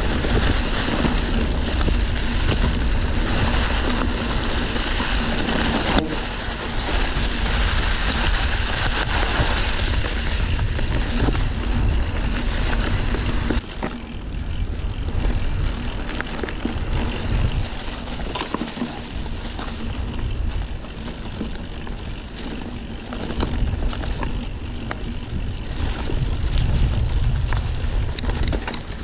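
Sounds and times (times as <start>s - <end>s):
bicycle tyre road noise: 0.0s - 29.0s
sharp clicks and rattles: 0.0s - 29.0s
wind buffeting microphone: 0.0s - 29.0s.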